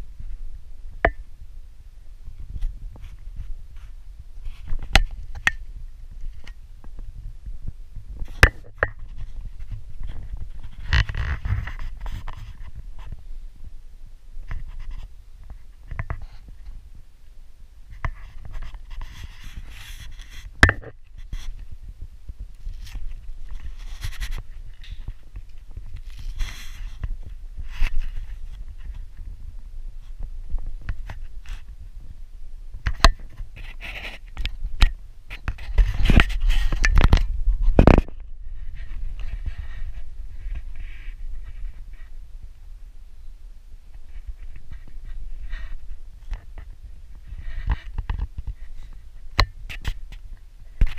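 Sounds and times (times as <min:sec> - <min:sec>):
soft rustling: 0:02.2 - 0:13.8, 0:17.9 - 0:50.9
camera handling rumble: 0:02.4 - 0:07.0, 0:08.2 - 0:13.2, 0:22.5 - 0:29.3, 0:32.8 - 0:42.1, 0:43.9 - 0:50.9.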